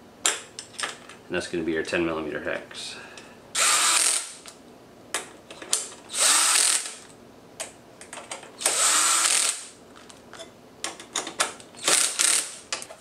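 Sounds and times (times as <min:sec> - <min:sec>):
power screwdriver whirring: 0:03.6 - 0:04.4, 0:06.1 - 0:07.0, 0:08.6 - 0:09.7, 0:11.8 - 0:12.6.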